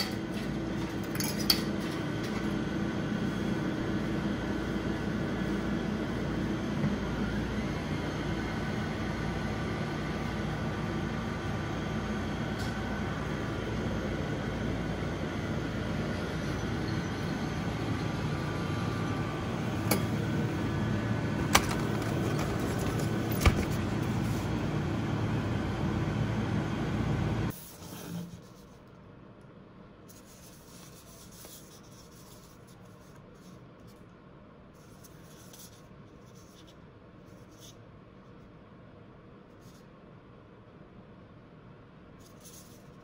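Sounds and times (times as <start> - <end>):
vending machine humming: 0.0 - 28.7.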